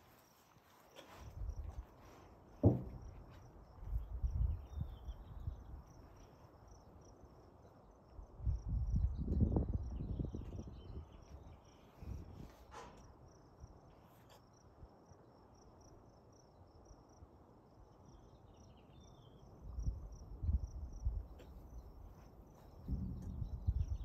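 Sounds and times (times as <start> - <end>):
insects chirping: 0.0 - 24.0
low thumps and rumbles: 22.7 - 24.0.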